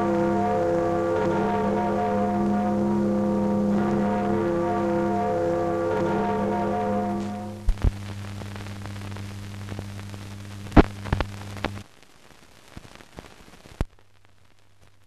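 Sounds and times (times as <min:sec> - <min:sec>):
film soundtrack hum: 0:00.0 - 0:11.8
film soundtrack hiss: 0:00.0 - 0:15.0
crackles and pops: 0:06.5 - 0:15.0.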